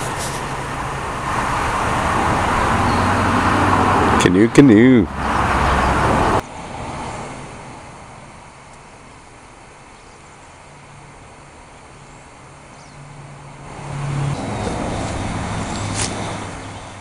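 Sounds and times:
vehicle passing by: 0.0 - 8.2, 12.9 - 17.0.

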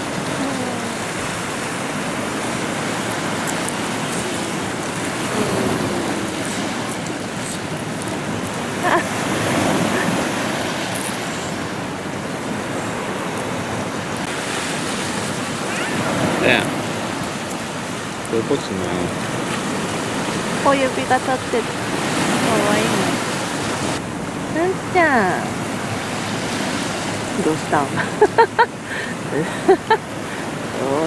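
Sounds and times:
waves breaking on rocks: 0.0 - 31.0.

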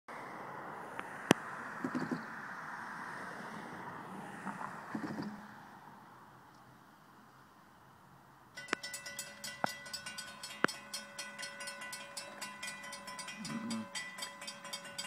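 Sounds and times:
crossing warning bell ringing: 8.6 - 15.0.

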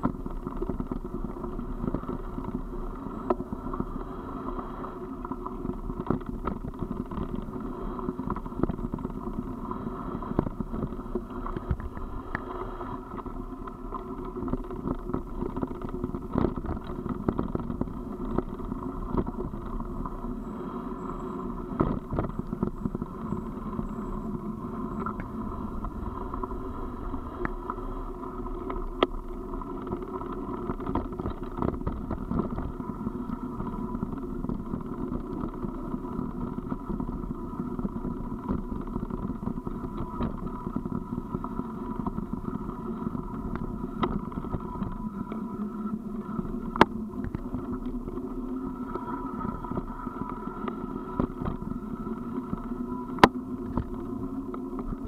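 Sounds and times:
sharp clicks and knocks from bumps: 0.0 - 3.9, 5.3 - 9.5, 13.1 - 20.2, 21.7 - 26.6, 28.4 - 32.8, 43.1 - 45.4, 52.4 - 55.0.

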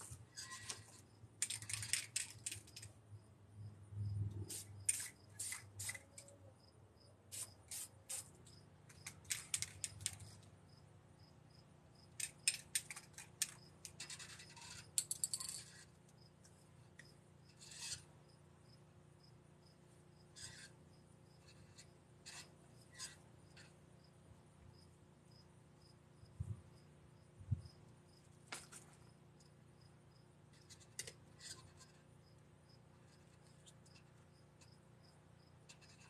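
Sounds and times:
spray cans rattling: 1.4 - 2.8, 4.5 - 6.3, 9.0 - 10.3.

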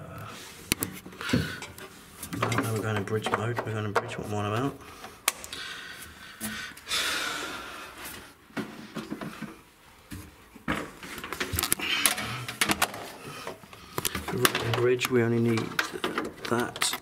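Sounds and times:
connectors clicking and knocking: 0.7 - 5.6, 8.9 - 17.0
cable handling rustling: 8.6 - 17.0.

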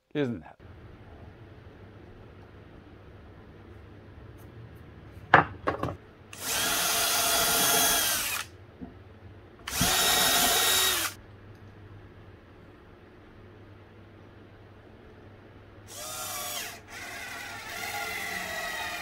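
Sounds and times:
tools knocking on bench: 5.3 - 6.0
cordless drill boring into wood: 6.4 - 8.5, 9.7 - 11.2, 15.9 - 19.0.

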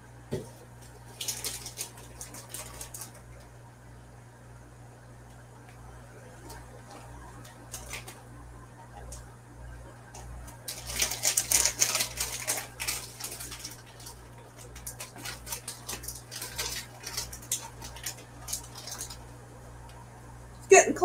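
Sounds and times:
steady low hum: 0.0 - 21.0
plastic bag crinkling: 0.3 - 3.4, 6.4 - 8.3, 10.2 - 19.4.

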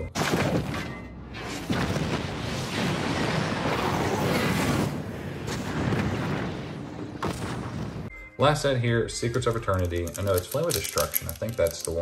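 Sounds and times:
rumble of destruction: 0.2 - 8.1
huge fiery explosion: 1.6 - 8.1.

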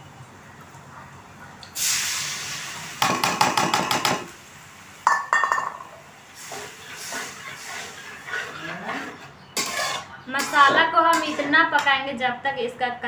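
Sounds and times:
spices sizzling in hot oil: 1.7 - 11.7
metal bowl clinking against pan: 5.1 - 5.9
steel bowl set down: 5.1 - 5.9.

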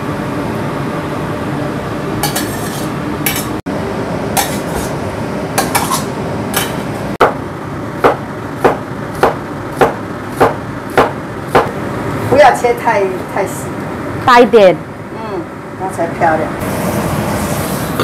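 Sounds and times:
metal ladle scraping a pan: 2.2 - 3.6, 4.4 - 5.0, 5.6 - 6.9
knife chopping onto cutting board: 8.0 - 11.7.

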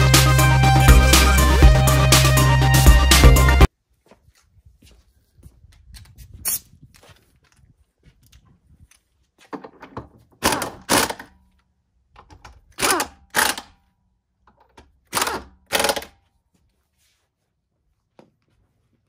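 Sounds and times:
pneumatic impact wrench: 10.4 - 11.3, 12.7 - 13.8, 15.1 - 16.2.

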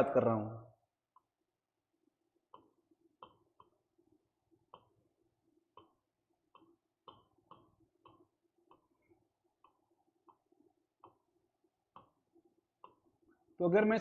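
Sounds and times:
pen tapping on board: 5.7 - 9.0.

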